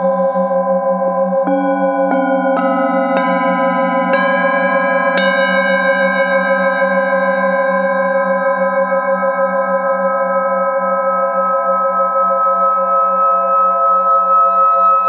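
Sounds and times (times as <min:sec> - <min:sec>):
singing bowl struck with mallet: 0:00.0 - 0:08.8
singing bowl ringing when rubbed: 0:00.0 - 0:15.0.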